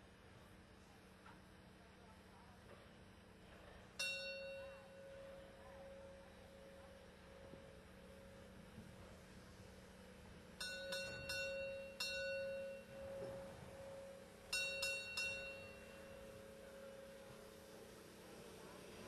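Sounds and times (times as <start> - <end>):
bell strikes: 4.0 - 4.9, 10.6 - 17.4
faint steady hum: 4.0 - 19.0.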